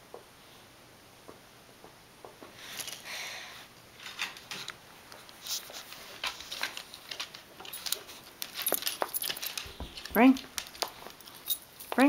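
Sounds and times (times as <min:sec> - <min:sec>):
dog claws clicking on wooden floor: 0:06.2 - 0:12.0.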